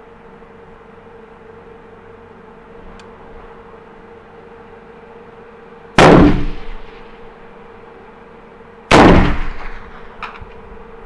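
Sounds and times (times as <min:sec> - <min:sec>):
rifle shots with ringing tail: 0:06.0 - 0:07.0, 0:08.9 - 0:10.2.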